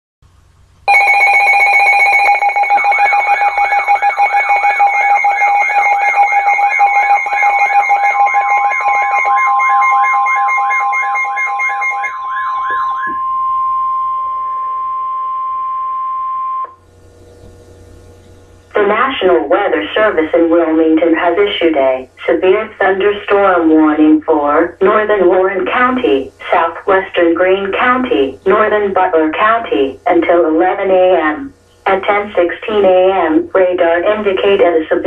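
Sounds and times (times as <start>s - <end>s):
fast warbling siren: 0.9s - 16.8s
long steady alert tone: 0.9s - 16.8s
piercing alarm tones: 0.9s - 16.8s.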